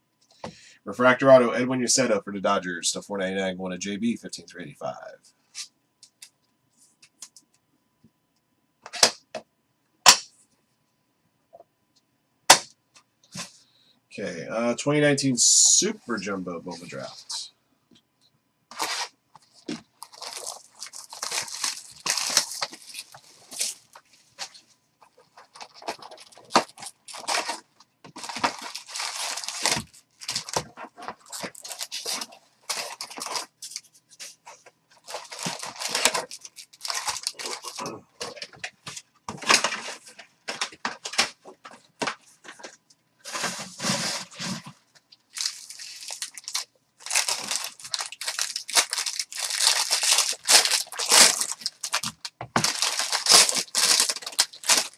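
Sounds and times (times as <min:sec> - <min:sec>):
cardboard and foil crinkling tearing: 0:18.7 - 0:38.6, 0:42.5 - 0:54.9.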